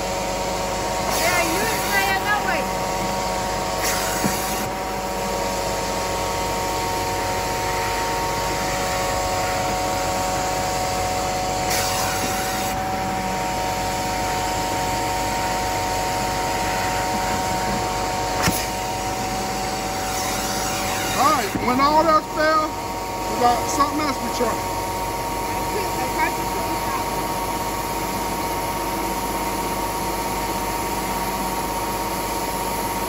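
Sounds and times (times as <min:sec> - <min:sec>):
carpet cleaner vacuum motor whining: 0:00.0 - 0:33.0.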